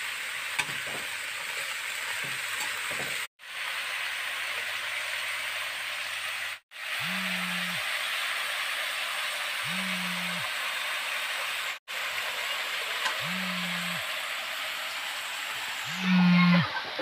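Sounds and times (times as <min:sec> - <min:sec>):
vegetables frying in a wok: 0:00.0 - 0:17.0
low humming buzz: 0:09.7 - 0:10.5, 0:13.2 - 0:14.0, 0:15.9 - 0:16.7.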